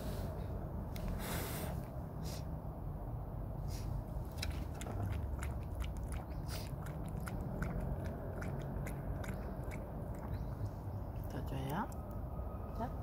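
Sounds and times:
dog lapping water: 4.2 - 11.4.

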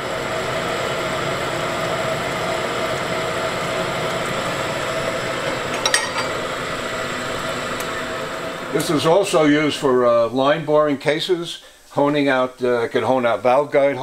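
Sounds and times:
machine whine: 0.0 - 10.4
shop machinery humming: 0.0 - 11.0
metallic clink: 5.7 - 6.3.

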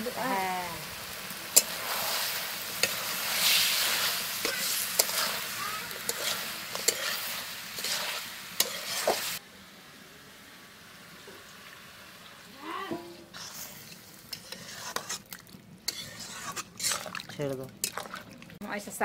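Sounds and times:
chicken sizzling: 0.0 - 19.0
ladle scraping metal pan: 1.6 - 9.4, 13.3 - 18.3.

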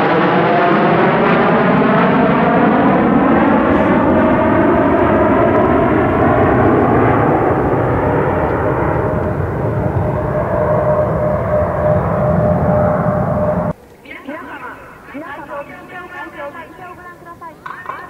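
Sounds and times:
engine whine sliding down: 0.0 - 13.8
jet fighters roaring past: 0.0 - 18.0.

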